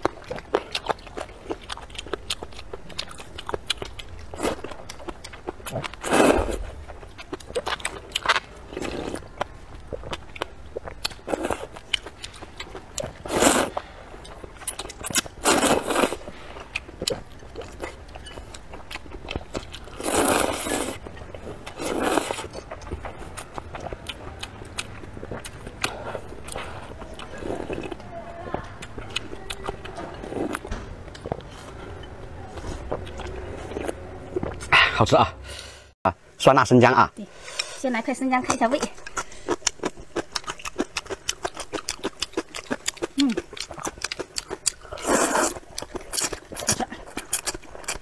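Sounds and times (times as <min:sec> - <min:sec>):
wet chewing and smacking: 0:00.0 - 0:34.7, 0:38.4 - 0:48.0
noodles being slurped: 0:44.5 - 0:48.0.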